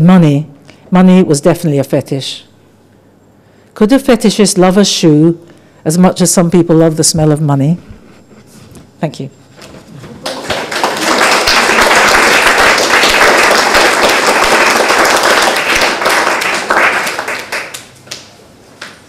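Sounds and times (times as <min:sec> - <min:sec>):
audience applauding: 0:10.2 - 0:18.3.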